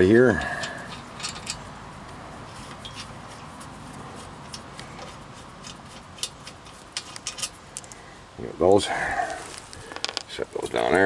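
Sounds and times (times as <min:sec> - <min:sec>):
steady background hiss: 0:00.0 - 0:11.0
light clicks of bolts turning: 0:00.3 - 0:01.7, 0:04.5 - 0:08.0.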